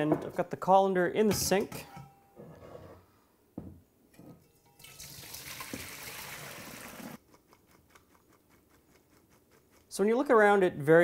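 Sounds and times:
water splashing into colander: 4.6 - 7.2.

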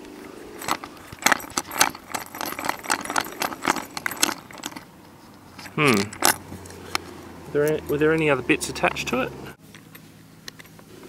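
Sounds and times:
clicks and rattles of plastic parts: 0.6 - 4.9.

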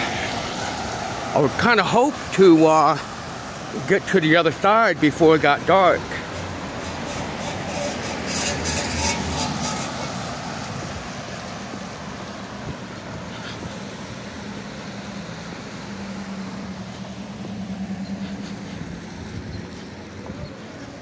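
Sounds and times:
tyres hissing on wet road: 0.0 - 21.0
low engine hum: 6.2 - 21.0.

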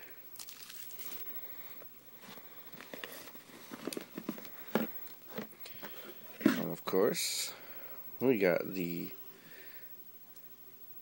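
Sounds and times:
cardboard box rustling: 2.2 - 6.7.

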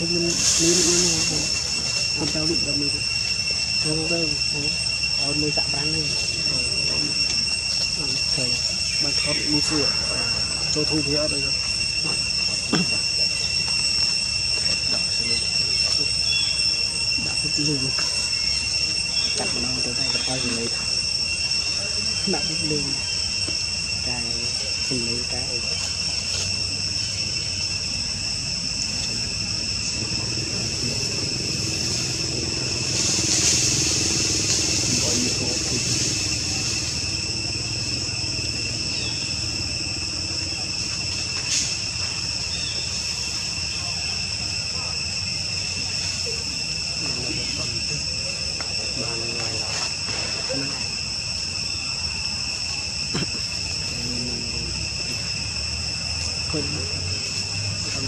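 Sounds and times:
insects droning: 0.0 - 58.0
low rumble: 24.0 - 44.5.

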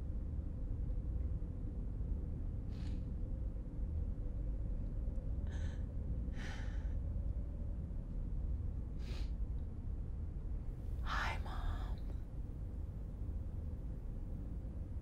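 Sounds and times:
steady low rumble: 0.0 - 15.0
woman breathing: 5.5 - 7.1.

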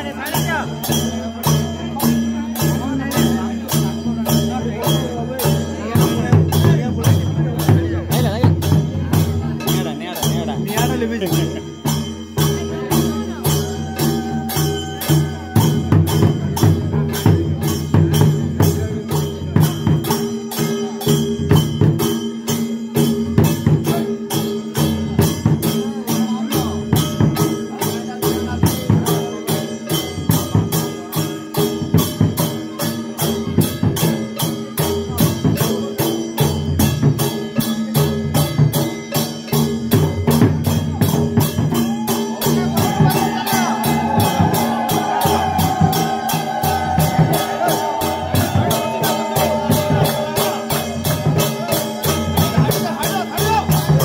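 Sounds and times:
fast metallic percussion strokes: 0.0 - 54.0.

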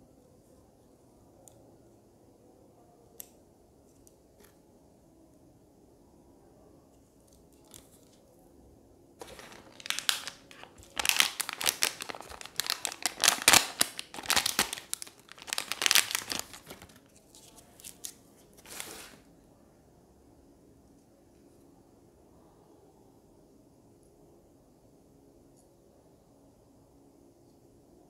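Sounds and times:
plastic bag crinkling: 9.2 - 19.2.

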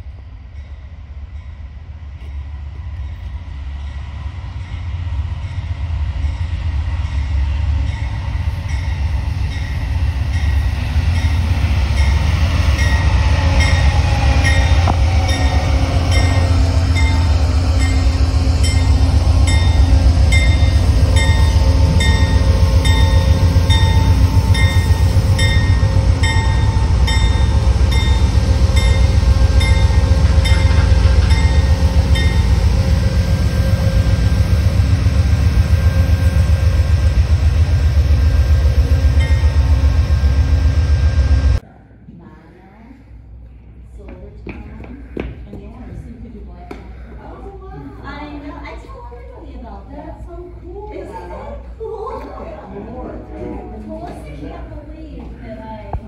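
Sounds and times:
diesel locomotive engine rumble: 0.0 - 56.0
locomotive bell ringing: 7.8 - 37.3, 37.9 - 41.6.

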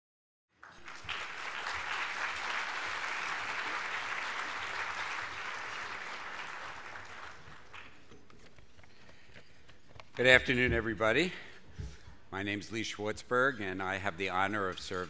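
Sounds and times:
audience applauding: 0.6 - 8.4.

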